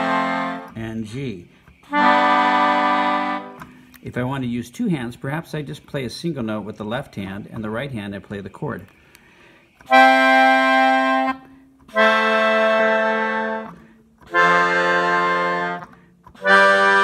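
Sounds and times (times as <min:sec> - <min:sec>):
melodica playing held chords: 0:00.0 - 0:04.6, 0:09.4 - 0:17.0.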